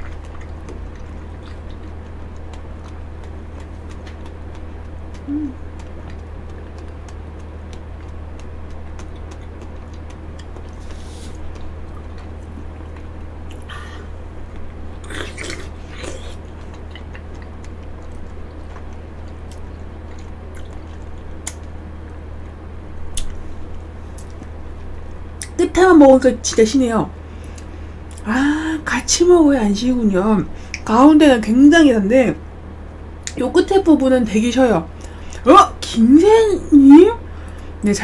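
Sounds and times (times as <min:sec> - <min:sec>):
chewing: 0:00.0 - 0:21.8
steady low hum: 0:00.0 - 0:38.0
mouth noises: 0:05.1 - 0:05.9.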